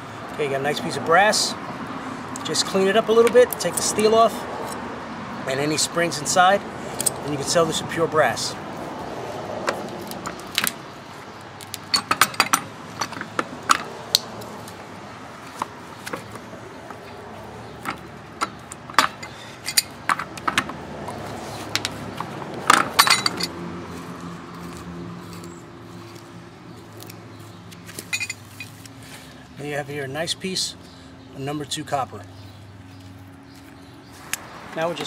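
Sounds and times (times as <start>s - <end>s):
metal parts clinking: 11.6s - 13.9s, 17.8s - 20.7s, 22.7s - 23.6s, 28.0s - 28.8s.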